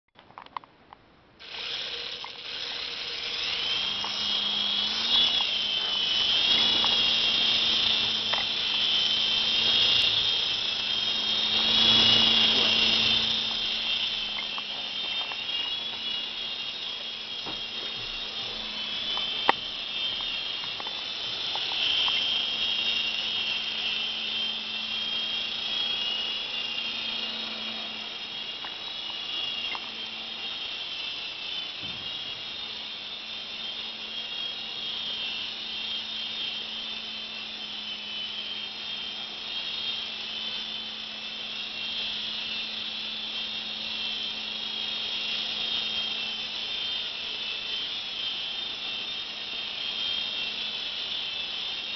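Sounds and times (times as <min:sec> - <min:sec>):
toy helicopter motor whine: 0:01.4 - 0:51.9.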